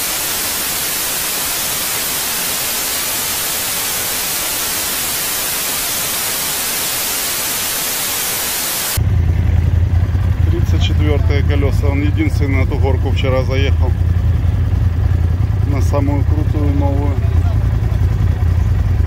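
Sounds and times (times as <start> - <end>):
white noise hiss: 0.0 - 9.0.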